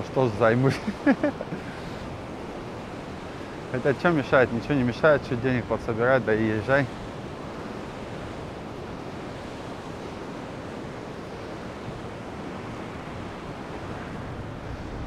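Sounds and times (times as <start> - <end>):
waves breaking on shore: 0.0 - 15.0
wind on microphone: 6.9 - 15.0.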